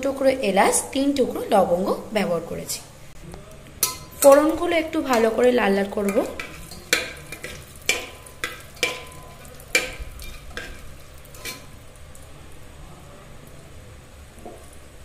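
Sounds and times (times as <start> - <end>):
spices sizzling in butter: 3.8 - 15.0.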